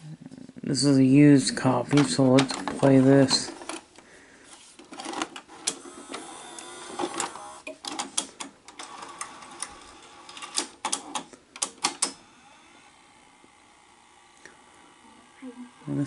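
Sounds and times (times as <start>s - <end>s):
mechanical clicks and clunks: 4.8s - 12.2s
motor whirring: 5.5s - 7.7s, 12.1s - 16.0s.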